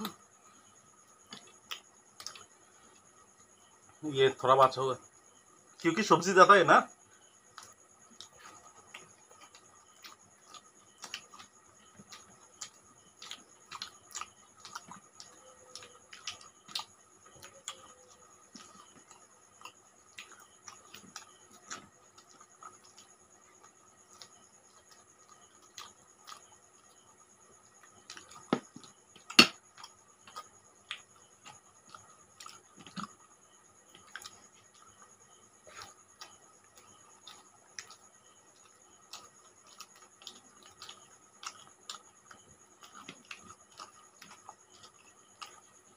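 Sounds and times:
faint steady high tone: 0:00.0 - 0:45.9
mouths chewing wet smacks: 0:07.5 - 0:26.9, 0:33.9 - 0:45.9.

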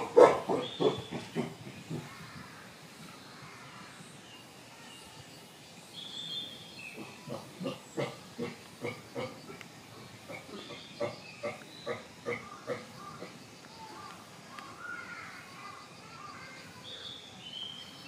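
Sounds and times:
chimpanzee grunting: 0:00.0 - 0:02.2, 0:07.0 - 0:13.4.

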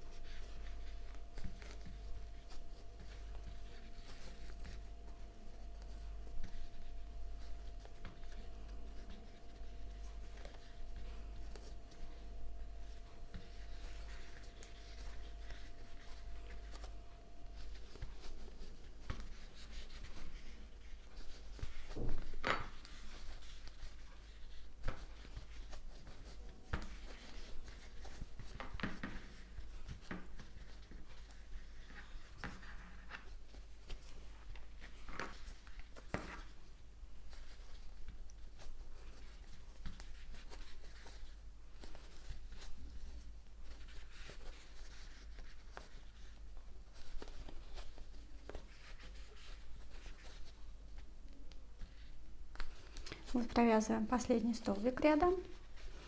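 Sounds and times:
steady low hum: 0:00.0 - 0:21.9.

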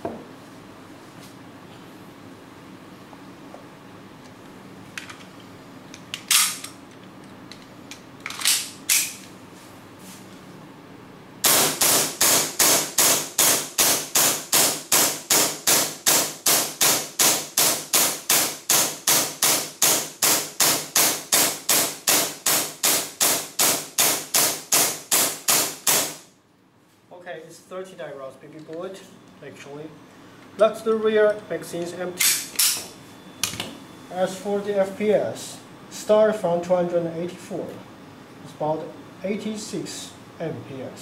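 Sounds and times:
airsoft pistol shots: 0:11.4 - 0:26.2.

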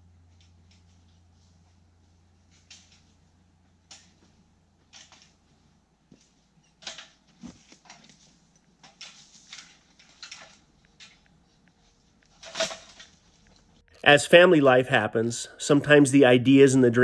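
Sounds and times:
aluminium ladder rattling: 0:03.8 - 0:05.4, 0:06.6 - 0:11.3, 0:12.3 - 0:13.4.

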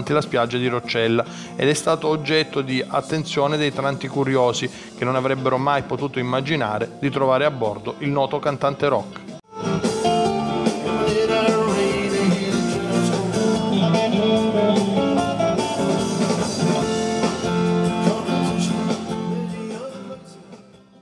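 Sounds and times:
bass guitar: 0:08.6 - 0:21.0
electric guitar: 0:09.1 - 0:21.0
man singing: 0:10.6 - 0:15.0, 0:16.3 - 0:20.9.

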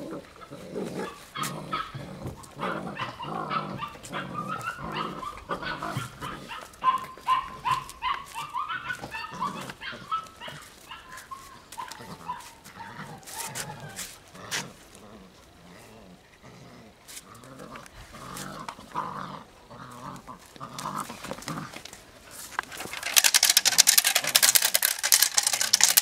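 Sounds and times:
puppies barking: 0:01.0 - 0:14.0, 0:22.8 - 0:26.0.

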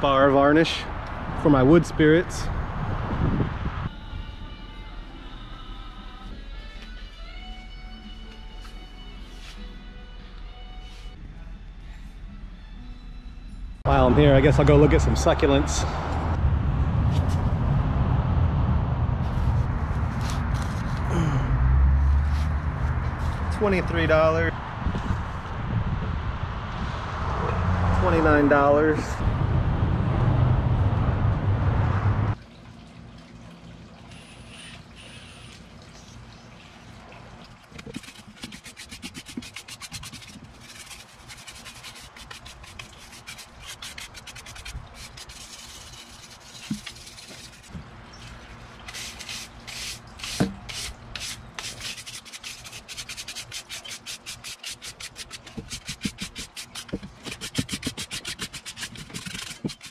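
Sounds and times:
loud outdoor rumble: 0:00.0 - 0:04.9, 0:13.8 - 0:32.4
brush scrubbing wood: 0:37.8 - 0:59.9.

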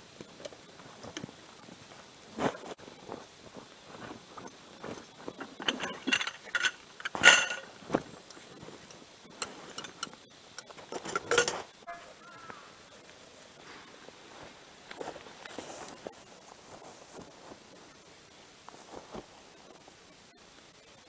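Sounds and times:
gear rustling with metallic clinks: 0:04.0 - 0:08.0, 0:08.9 - 0:11.7.

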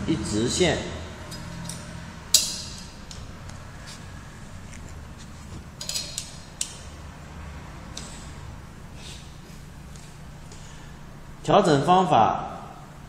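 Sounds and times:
low steady hum: 0:00.0 - 0:13.0
screwdriver clinking on metal: 0:01.3 - 0:03.2, 0:05.8 - 0:06.9.

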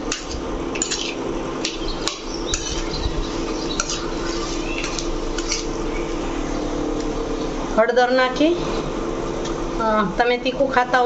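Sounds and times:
induction cooktop hum: 0:00.0 - 0:11.0
spoon scraping a metal pan: 0:00.1 - 0:05.8.

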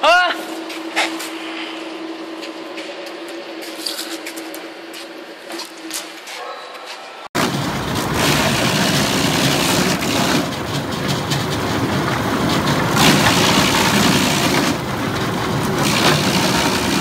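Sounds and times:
wood chipper running: 0:07.4 - 0:17.0.

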